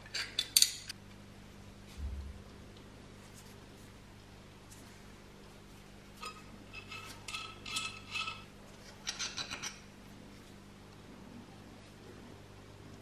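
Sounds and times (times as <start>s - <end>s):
metal parts scraping and ringing: 6.2s - 9.8s.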